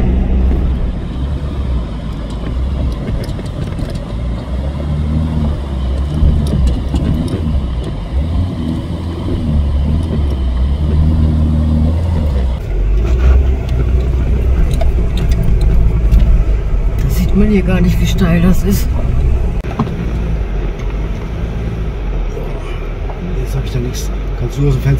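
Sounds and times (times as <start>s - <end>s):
truck engine droning: 0.0s - 24.9s.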